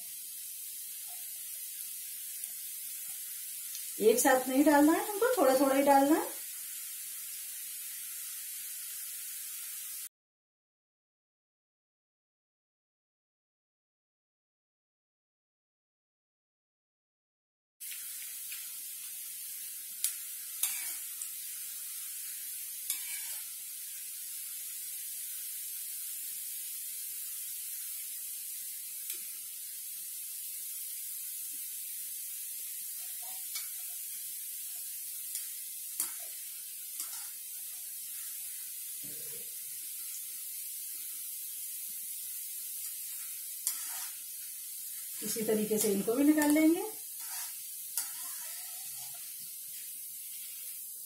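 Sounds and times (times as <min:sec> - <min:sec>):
batter deep-frying in oil: 0:00.0 - 0:10.1, 0:17.8 - 0:51.0.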